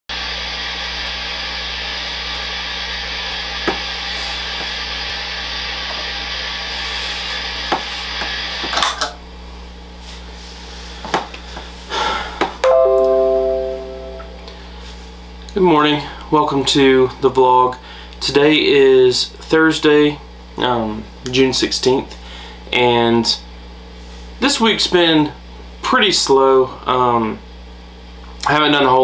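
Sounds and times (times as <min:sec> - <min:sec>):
chord of held notes: 0:12.6 - 0:14.7.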